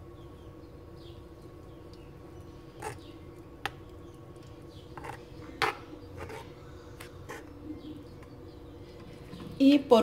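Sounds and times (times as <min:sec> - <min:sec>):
faint steady hum: 0:00.0 - 0:10.0
spoon scraping stone bowl: 0:02.8 - 0:03.1, 0:04.9 - 0:07.6.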